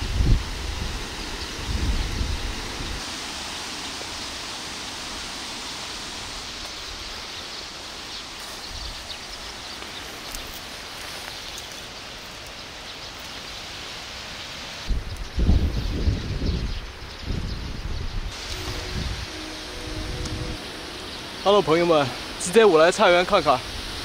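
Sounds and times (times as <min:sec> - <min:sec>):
wind buffeting microphone: 0:00.0 - 0:03.0, 0:14.9 - 0:22.5
wind rustling leaves: 0:00.0 - 0:24.0.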